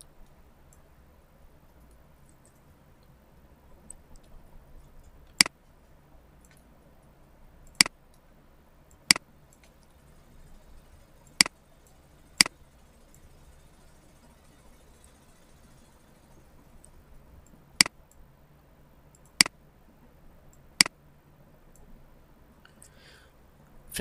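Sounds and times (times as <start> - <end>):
faint ticks: 1.6 - 18.2, 19.1 - 19.6.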